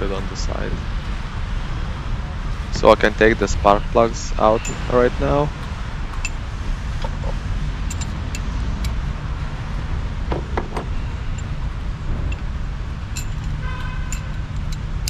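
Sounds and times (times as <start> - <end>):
hand tools clinking: 4.4 - 4.9, 7.8 - 8.5, 13.1 - 15.0.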